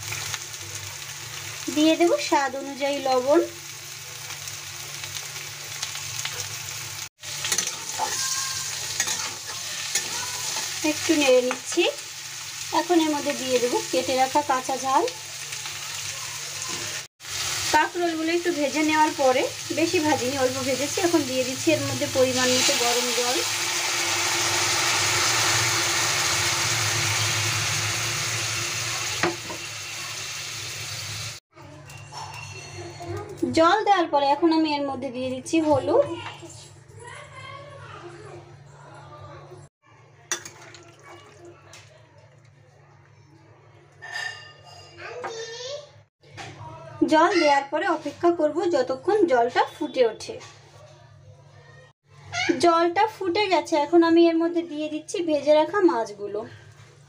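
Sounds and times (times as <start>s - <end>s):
vegetables sizzling in hot oil: 0.0s - 31.4s
spoon stirring and scraping: 7.4s - 10.8s, 43.9s - 45.0s.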